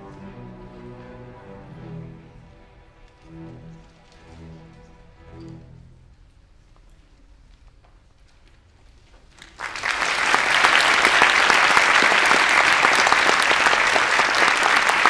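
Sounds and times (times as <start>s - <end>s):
audience applauding: 9.4s - 15.0s.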